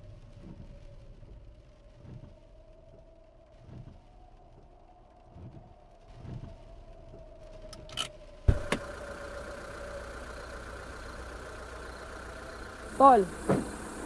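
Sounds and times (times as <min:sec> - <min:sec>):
soft low thuds: 0:00.0 - 0:07.7
car engine idling: 0:00.0 - 0:14.0
loud thump: 0:13.4 - 0:13.8.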